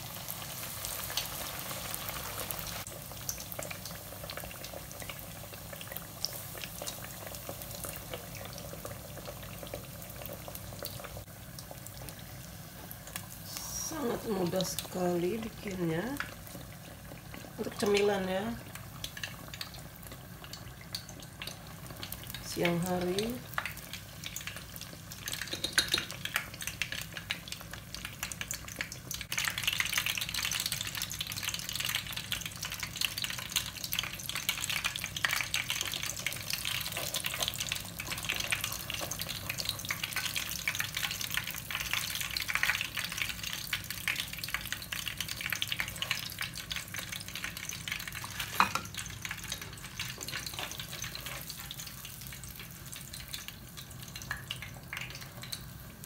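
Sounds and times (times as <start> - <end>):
food deep-frying in oil: 0.0 - 56.0.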